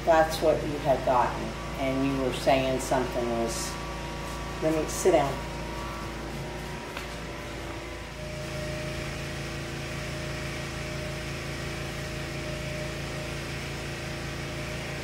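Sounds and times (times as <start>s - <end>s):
air conditioning hum: 0.0s - 15.0s.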